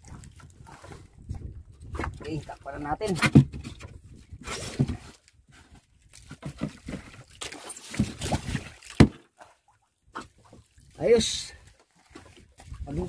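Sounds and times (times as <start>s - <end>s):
board lid scraping and knocking: 3.1s - 5.1s.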